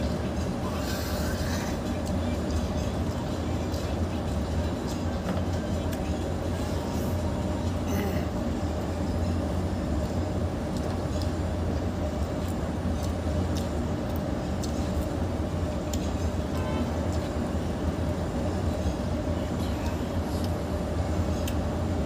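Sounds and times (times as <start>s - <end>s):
low rumbling hum: 0.0s - 22.0s
person chewing: 10.7s - 16.2s.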